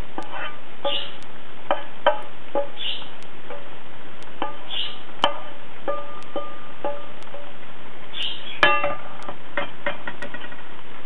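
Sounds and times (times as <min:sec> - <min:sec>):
plucked guitar notes: 0:00.0 - 0:10.2.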